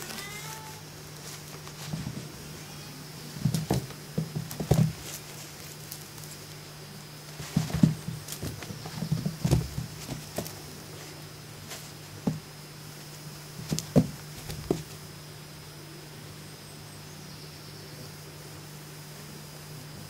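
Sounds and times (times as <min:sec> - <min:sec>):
steady low hum: 0:00.0 - 0:20.0
kittens' paws thumping on carpet: 0:03.3 - 0:06.0, 0:07.4 - 0:12.4, 0:13.6 - 0:15.0.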